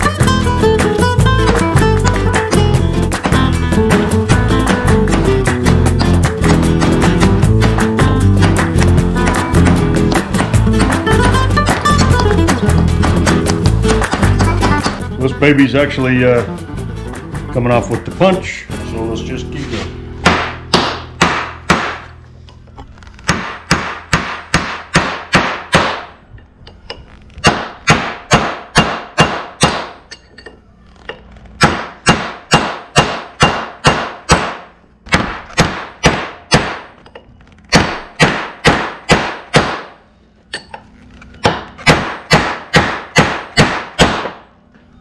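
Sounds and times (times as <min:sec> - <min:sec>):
hammer striking metal punch: 0:20.2 - 0:22.1, 0:23.3 - 0:26.2, 0:27.4 - 0:30.6, 0:31.6 - 0:40.8, 0:41.4 - 0:44.4.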